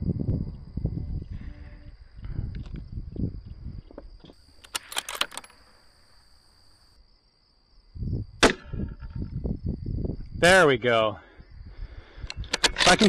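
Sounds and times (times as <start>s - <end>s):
wind rumbling on microphone: 0.0s - 4.4s, 7.8s - 13.0s
sharp clicks: 4.5s - 5.6s
rifle shot: 8.4s - 9.0s.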